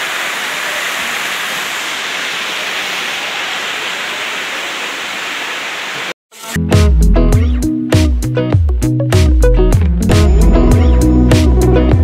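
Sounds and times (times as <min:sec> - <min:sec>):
waterfall rushing: 0:00.0 - 0:06.2.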